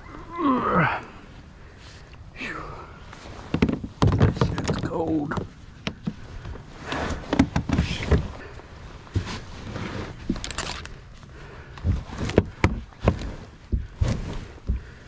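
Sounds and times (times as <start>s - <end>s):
grass stems rustling: 3.1s - 15.0s
dull thuds: 3.4s - 10.6s, 11.4s - 15.0s.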